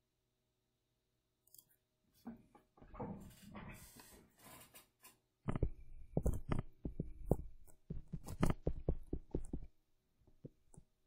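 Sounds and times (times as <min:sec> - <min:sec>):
stylus tapping on pen tablet: 0:05.4 - 0:11.0.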